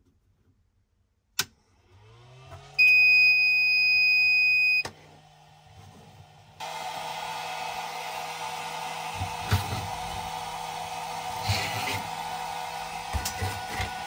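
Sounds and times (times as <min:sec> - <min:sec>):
fan rushing noise: 0:05.1 - 0:14.0.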